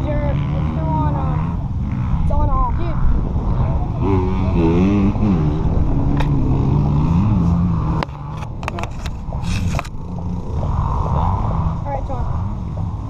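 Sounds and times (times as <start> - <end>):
dirt bike engine idling: 0.0 - 13.0
short scrape: 8.9 - 9.9.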